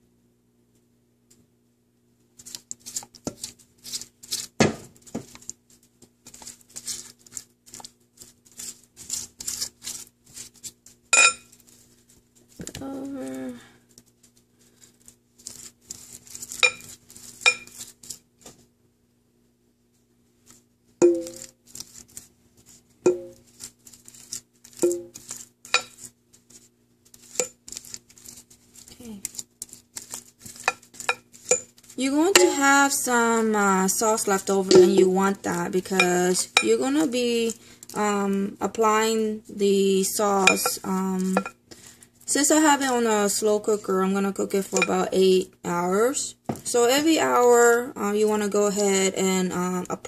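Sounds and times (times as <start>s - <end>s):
faint steady hum: 0.0s - 50.0s
brush patting and scraping sauce: 2.3s - 12.8s, 13.9s - 18.7s, 20.0s - 45.4s
brush clinking against crock: 16.3s - 17.8s, 29.3s - 32.8s, 34.7s - 35.1s, 40.4s - 41.6s.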